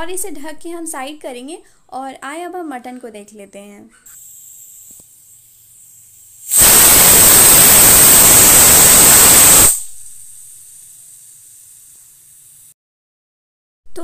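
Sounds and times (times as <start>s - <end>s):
pressure cooker whistle: 4.2s - 12.6s.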